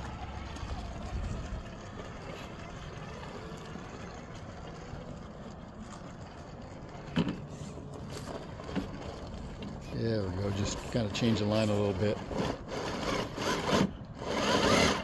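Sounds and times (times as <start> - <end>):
small electric motor whining: 8.6 - 15.0.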